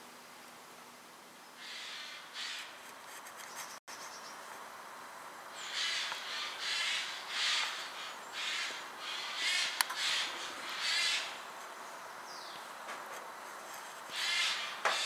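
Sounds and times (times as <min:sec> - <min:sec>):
raspy animal calls: 0:01.6 - 0:02.8, 0:05.6 - 0:11.5, 0:14.1 - 0:15.0.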